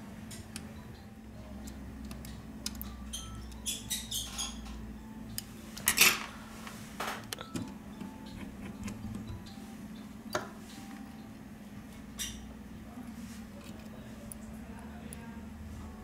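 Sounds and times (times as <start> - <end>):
metal tweezers ticking and clicking: 0.3 - 3.8, 13.6 - 15.4.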